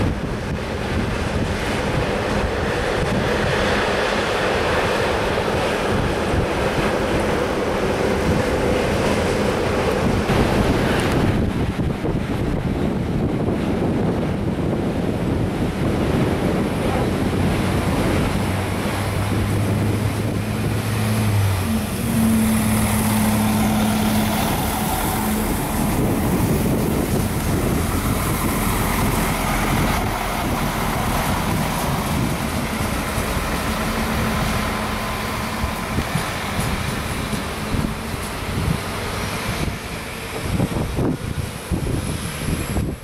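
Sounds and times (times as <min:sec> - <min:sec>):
diesel railcar engine drone: 0:00.0 - 0:43.0
rail rolling noise: 0:00.0 - 0:43.0
wind buffeting microphone: 0:00.0 - 0:43.0.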